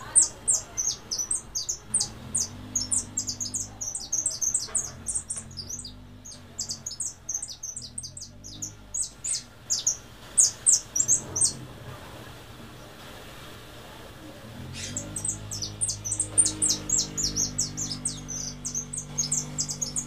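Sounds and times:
finch twittering song: 0.0 - 11.6, 14.6 - 20.0.

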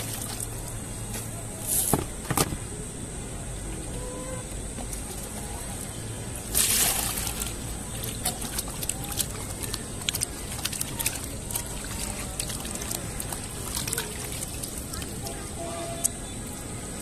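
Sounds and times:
water splash: 6.4 - 15.5.

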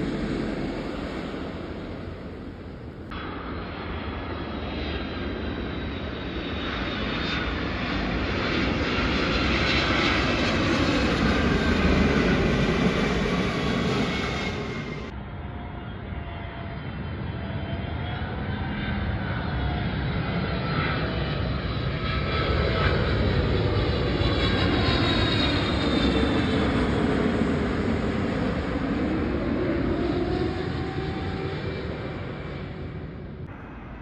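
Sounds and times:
whining engine tones: 0.0 - 3.7
jet airliner passing overhead: 0.0 - 34.0.

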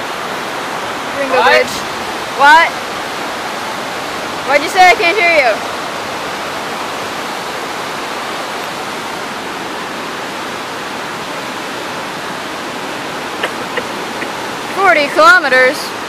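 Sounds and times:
white water rapids rushing: 0.0 - 16.0.

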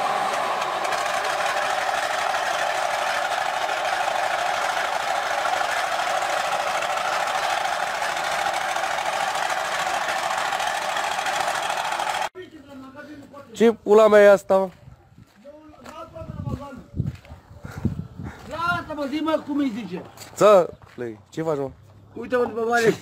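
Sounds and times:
tank engine idling: 0.7 - 12.3.

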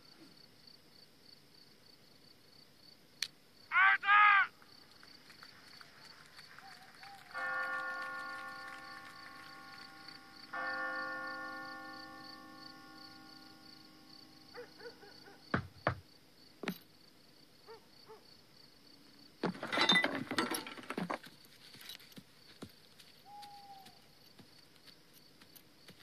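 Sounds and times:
church bell tolling: 7.4 - 14.6
sharp knocks: 15.5 - 16.0.

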